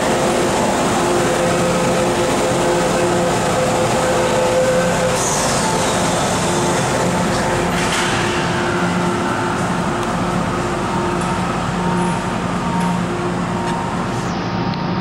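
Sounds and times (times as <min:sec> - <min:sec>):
train equipment humming: 0:00.0 - 0:15.0
train doors shutting clatter: 0:04.6 - 0:13.9.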